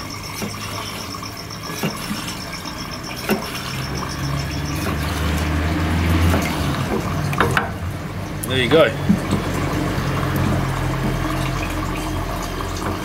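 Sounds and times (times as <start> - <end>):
rapid high-pitched pulsing: 0.0 - 7.3.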